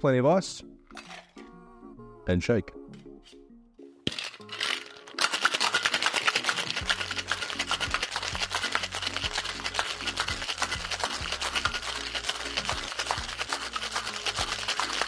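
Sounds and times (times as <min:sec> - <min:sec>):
ice rattling in cocktail shaker: 0:04.1 - 0:15.0.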